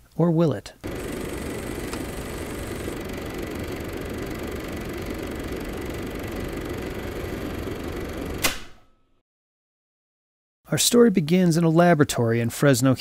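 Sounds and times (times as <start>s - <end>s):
film projector whirring: 0.8s - 8.7s.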